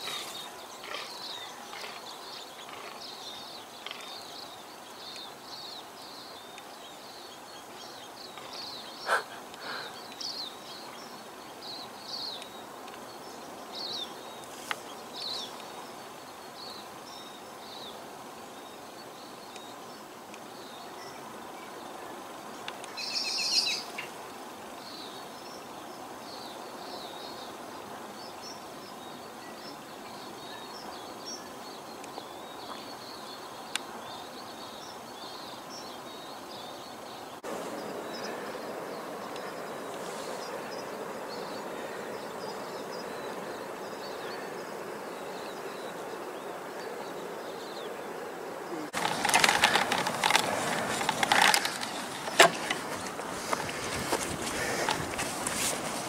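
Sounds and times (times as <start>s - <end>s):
birds chirping: 0.0s - 56.0s
outdoor background hiss: 0.0s - 56.0s
rustling and crunching: 49.0s - 56.0s.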